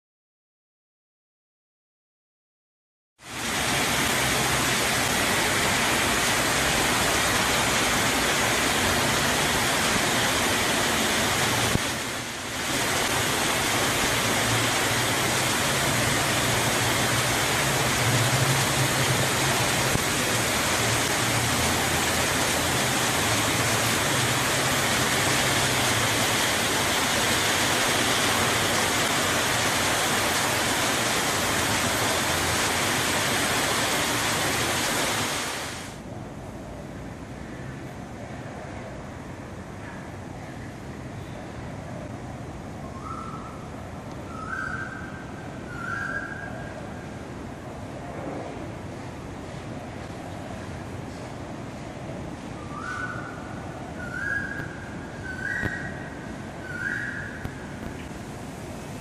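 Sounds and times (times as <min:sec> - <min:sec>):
heavy rain hissing: 0:03.2 - 0:36.0, 0:48.5 - 0:59.0.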